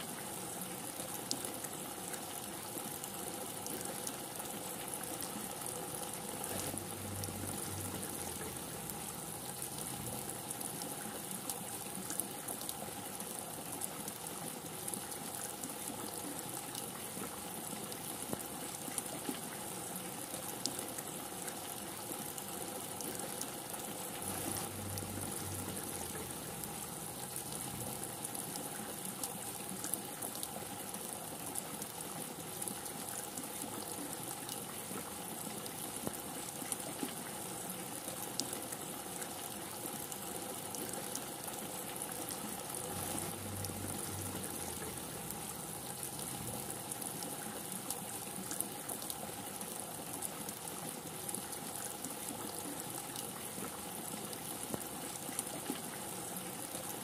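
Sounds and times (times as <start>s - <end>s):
raindrops ticking close by: 0.0s - 57.0s
heavy rain falling: 5.2s - 11.0s, 23.6s - 29.3s, 41.5s - 47.4s.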